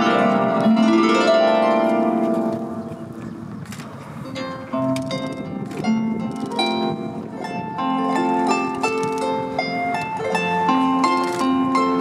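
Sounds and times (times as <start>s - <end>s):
plucked string notes: 0.0s - 3.3s.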